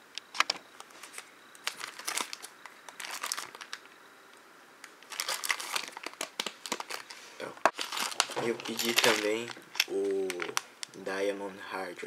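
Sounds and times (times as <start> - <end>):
plastic wrap crinkling and tearing: 1.0 - 3.9, 5.0 - 11.0.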